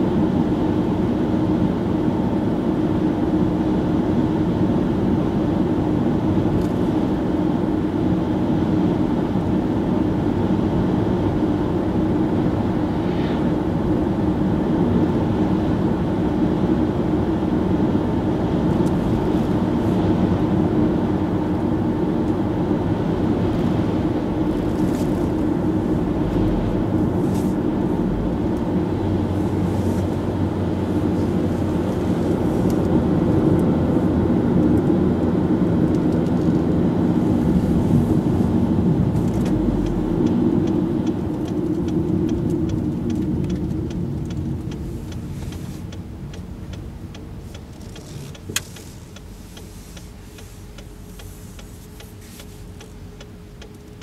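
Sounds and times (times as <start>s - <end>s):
car engine droning: 0.0s - 54.0s
tyres on asphalt: 22.1s - 34.9s, 35.8s - 54.0s.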